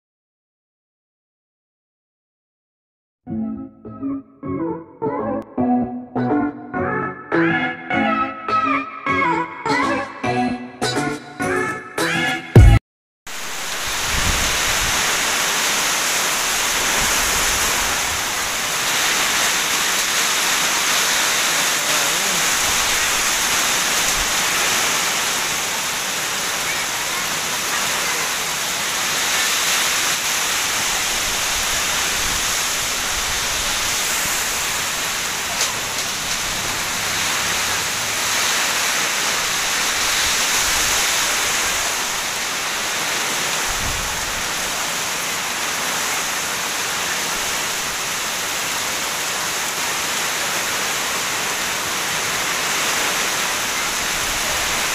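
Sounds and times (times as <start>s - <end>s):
heavy rain in strong wind: 13.3s - 54.9s.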